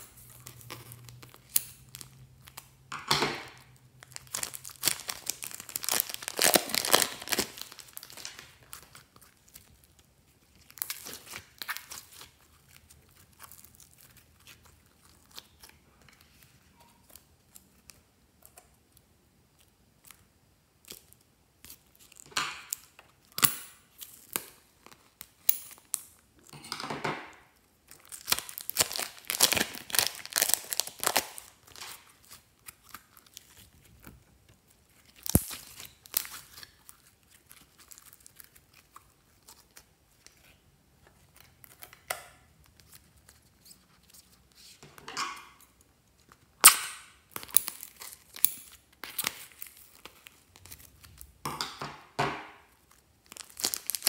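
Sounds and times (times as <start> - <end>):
plastic bag crinkling: 3.6 - 17.8, 27.9 - 40.3, 52.7 - 54.0
slime squishing: 3.6 - 25.4, 27.8 - 41.8.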